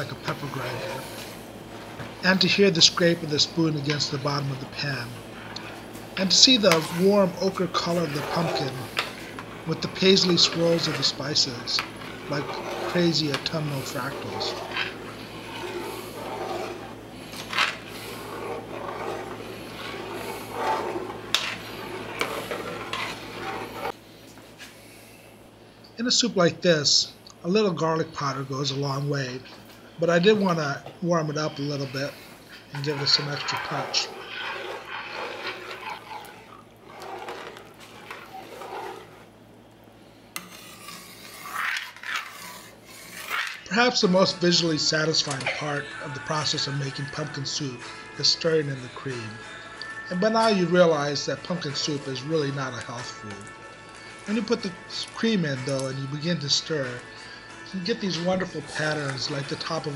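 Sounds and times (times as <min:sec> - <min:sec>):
metal spoon scraping a pot: 0:00.0 - 0:24.0, 0:28.2 - 0:39.4, 0:40.3 - 0:44.4, 0:58.3 - 0:59.9.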